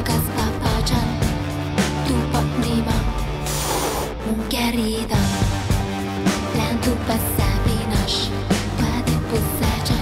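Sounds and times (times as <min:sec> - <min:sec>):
pop song with steady beat: 0:00.0 - 0:10.0.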